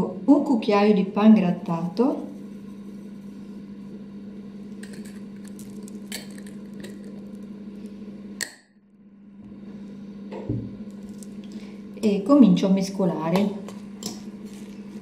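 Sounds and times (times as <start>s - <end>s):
steady low hum: 0.0s - 15.0s
spoon and glass jar clicking: 4.8s - 7.1s.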